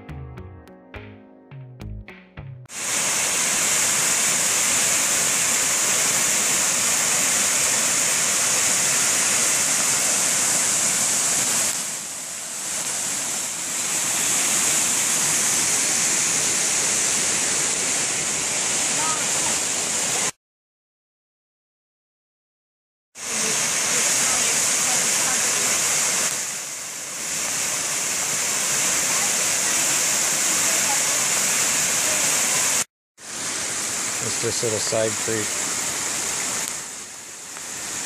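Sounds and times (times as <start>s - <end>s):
waterfall roaring: 2.8s - 20.3s, 23.2s - 38.0s.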